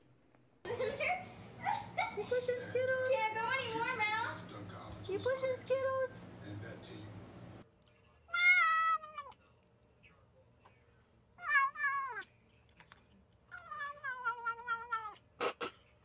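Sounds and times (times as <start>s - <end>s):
cat meowing: 8.3s - 9.4s, 11.4s - 12.3s, 13.5s - 15.2s.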